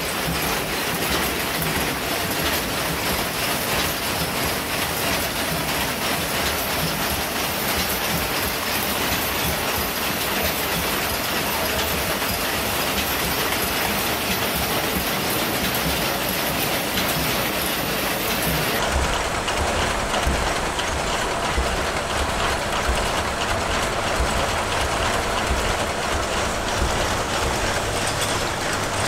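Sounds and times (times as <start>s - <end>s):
machine looms clattering: 0.0s - 29.0s.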